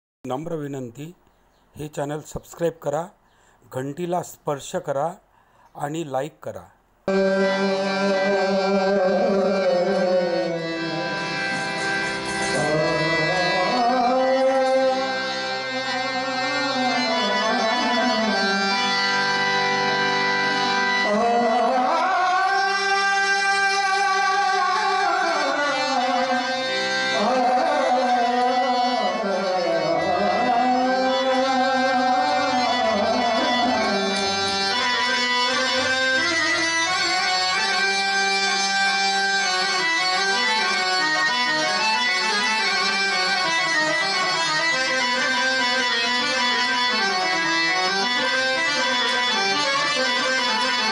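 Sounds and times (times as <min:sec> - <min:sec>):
man singing long notes: 0:07.1 - 0:19.6, 0:20.4 - 0:38.4
harmonium: 0:07.1 - 0:50.9.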